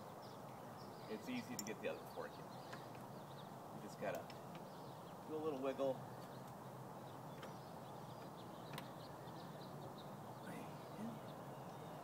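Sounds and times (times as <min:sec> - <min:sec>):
faint bird chirps: 0:04.3 - 0:12.0.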